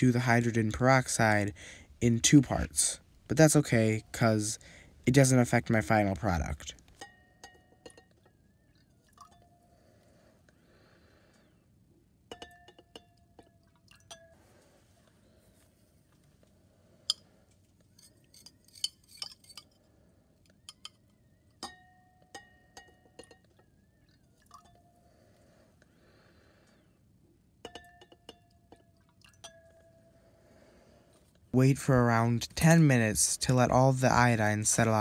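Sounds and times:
glass rod clinking on beakers: 6.4s - 9.7s, 12.3s - 14.4s, 18.0s - 19.8s, 20.6s - 24.9s, 27.6s - 30.1s.

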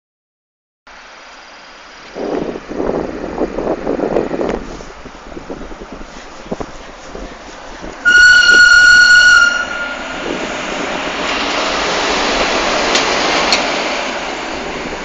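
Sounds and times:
train wheels rumbling on rails: 2.0s - 15.0s
locomotive horn: 8.0s - 10.4s.

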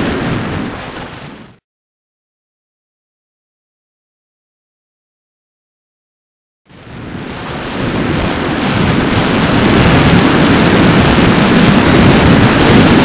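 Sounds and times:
wind rushing over microphone: 0.0s - 1.6s, 6.7s - 13.0s.

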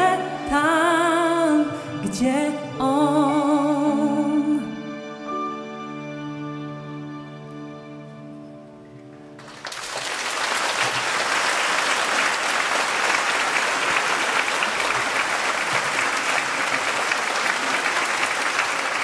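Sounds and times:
large audience applauding: 9.4s - 19.0s.

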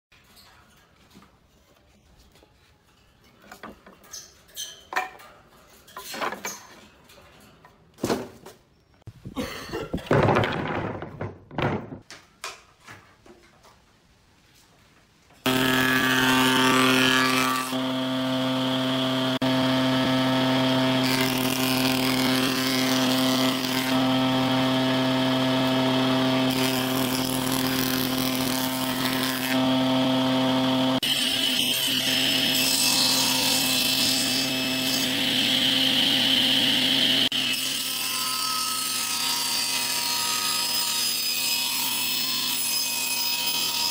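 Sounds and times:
wooden boards clattering: 9.8s - 12.7s
jointer planer humming and cutting: 15.5s - 43.9s.

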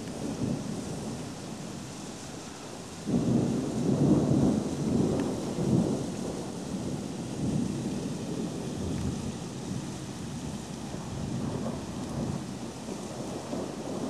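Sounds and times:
rain hissing: 0.0s - 14.0s
thunder rumble: 3.0s - 14.0s.

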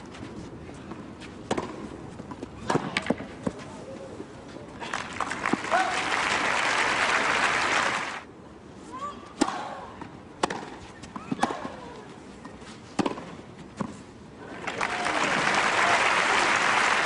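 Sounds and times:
crowd applauding: 4.8s - 8.2s, 14.6s - 17.0s
tennis racket hitting ball: 10.4s - 11.8s, 12.9s - 14.0s.

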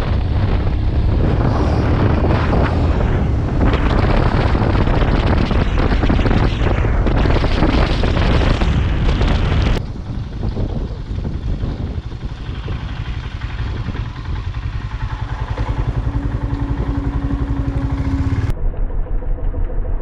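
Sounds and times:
wind buffeting microphone: 0.0s - 18.5s
motorcycle rumble: 0.0s - 18.6s.

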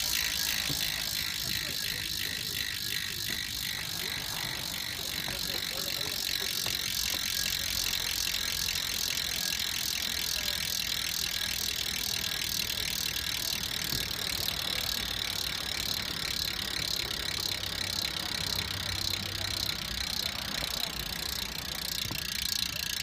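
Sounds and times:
bicycle freehub buzzing: 0.0s - 23.0s.

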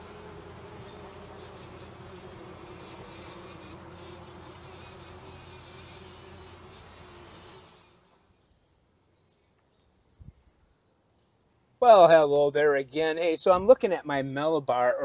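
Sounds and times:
flying insect buzzing: 0.0s - 8.4s.

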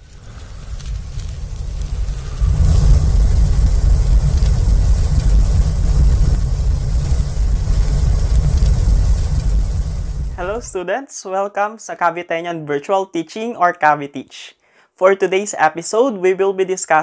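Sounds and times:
loud low rumble: 0.0s - 10.8s
faint hiss: 0.0s - 11.4s.

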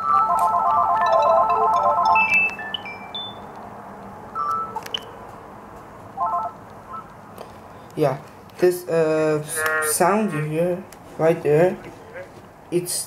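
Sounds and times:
electronic phone ringtone melody: 0.0s - 3.6s, 4.4s - 4.9s, 6.2s - 7.1s
handset key beep and click: 2.2s - 3.5s, 4.4s - 5.1s.

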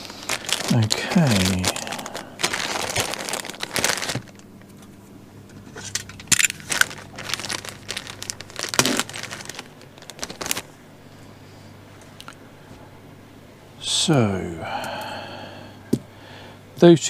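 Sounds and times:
plastic bags crinkling: 0.0s - 4.6s, 5.7s - 10.8s.

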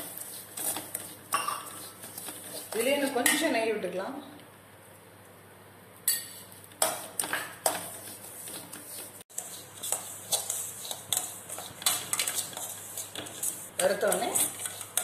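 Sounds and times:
metal spatula scraping a pan: 0.0s - 3.4s, 6.8s - 15.0s.

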